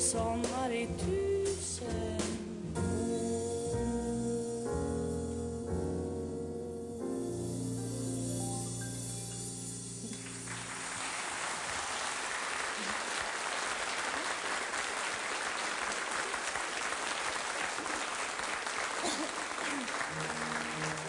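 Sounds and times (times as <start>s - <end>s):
piano and double bass chord: 0.0s - 11.0s, 20.1s - 21.0s
audience applause: 10.1s - 21.0s.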